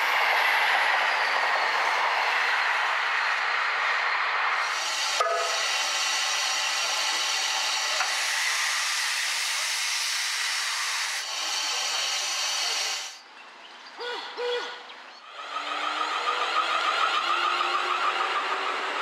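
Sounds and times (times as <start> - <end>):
steady loud hiss: 4.5 - 13.2.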